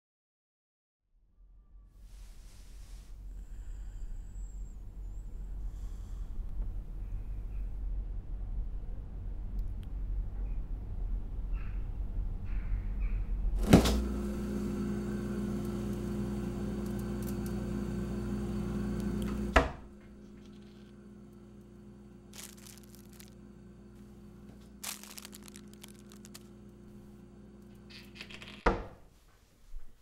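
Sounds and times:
appliance humming: 13.5 - 29.0.

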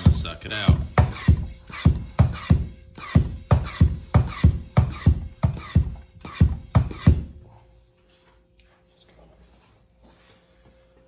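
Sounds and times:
background music with steady beat: 0.0 - 8.4.

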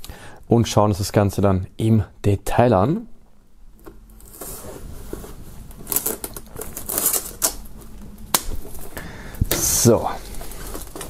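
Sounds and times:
knife slitting plastic film: 5.8 - 7.7.

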